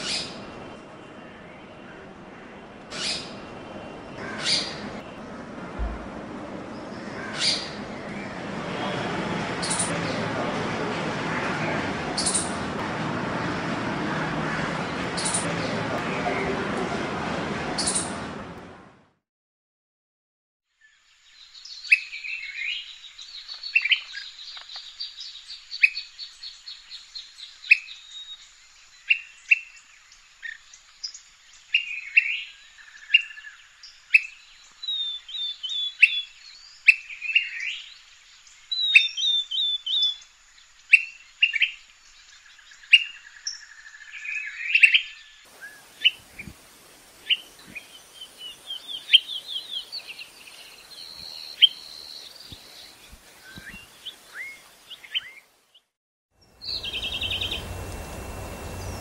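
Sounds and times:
faint low thumps: 5.2s - 6.6s
background hiss: 45.5s - 55.6s, 56.4s - 59.0s
bird rolling trills: 56.5s - 59.0s.

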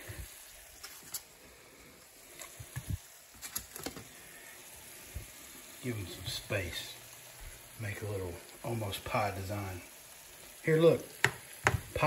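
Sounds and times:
vegetables sauteing hiss: 0.0s - 12.0s
sausages thudding into a pan: 11.1s - 12.0s.

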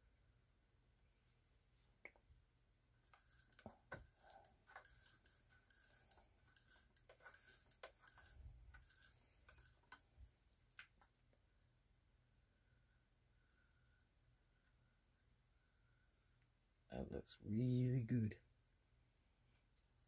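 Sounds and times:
sewing machine gears clicking: 3.2s - 10.0s.

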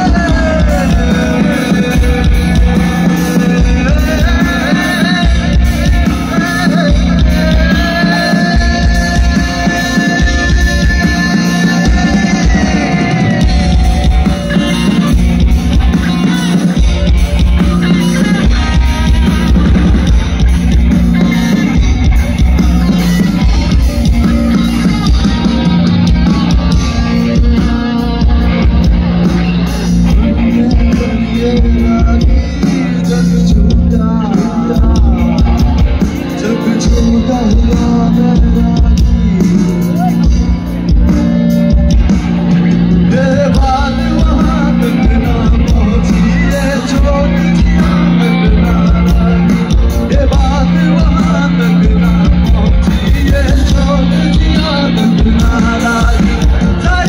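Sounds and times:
drums: 0.0s - 57.0s
electric guitars: 0.0s - 57.0s
person singing: 0.0s - 57.0s.

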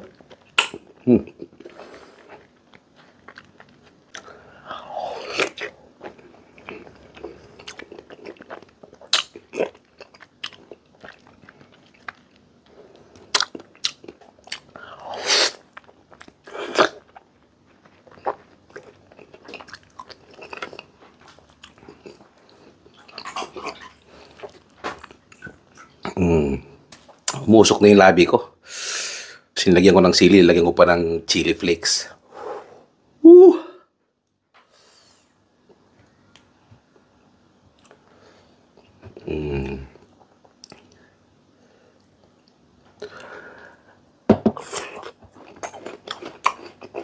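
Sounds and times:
person chewing crunchy fruit: 0.0s - 27.5s, 37.8s - 41.1s, 42.0s - 47.0s.

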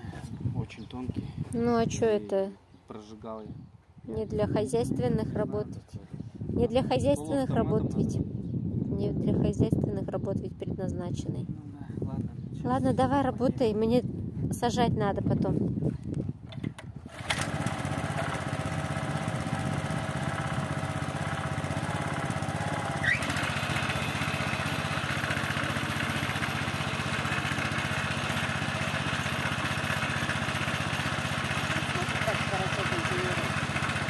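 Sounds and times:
small petrol engine running: 17.0s - 34.0s
short squeal: 23.0s - 23.4s.

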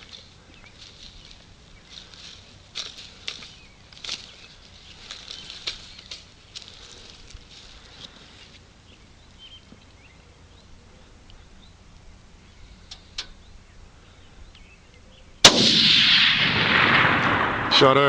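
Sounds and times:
faint bird chirps: 0.0s - 15.4s
rifle shot with rolling report: 15.4s - 18.0s.

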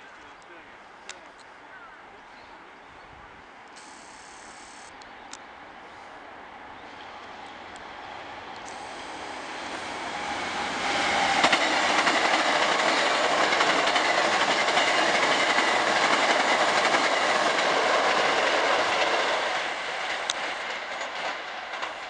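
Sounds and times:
train wheel and rail noise: 0.0s - 22.0s
wheels clacking over rail joints: 8.6s - 22.0s.

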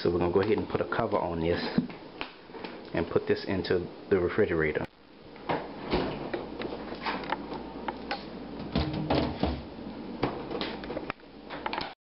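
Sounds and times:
refrigerator door opening: 5.5s - 6.4s, 8.6s - 10.7s.

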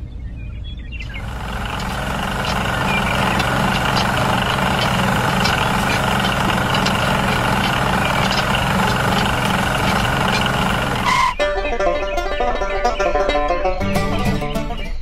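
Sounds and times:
steady engine-like drone: 1.0s - 11.4s.

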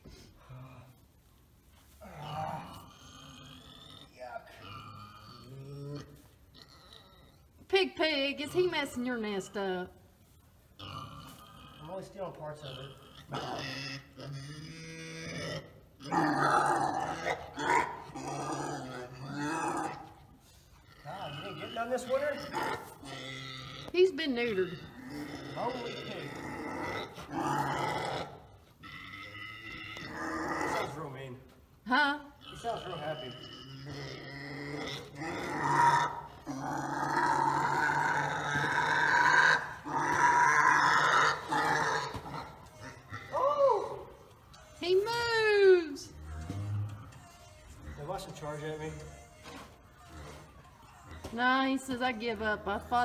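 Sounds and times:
pig grunting: 2.0s - 7.6s, 10.8s - 31.4s, 32.2s - 44.8s, 46.0s - 53.0s.

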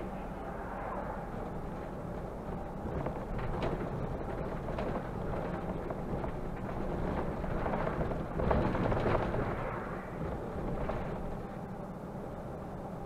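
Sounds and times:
bus engine and road rumble: 0.0s - 13.0s
rattles and knocks: 1.3s - 11.6s.

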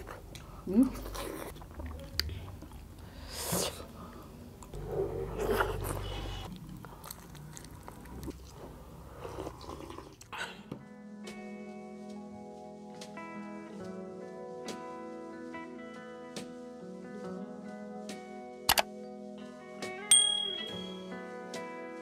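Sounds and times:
people chewing food: 0.0s - 10.8s
music: 10.2s - 22.0s.

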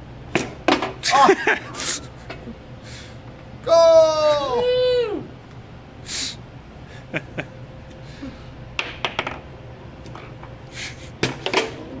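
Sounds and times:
foosball ball clicks and knocks: 8.8s - 9.5s, 11.2s - 12.0s.

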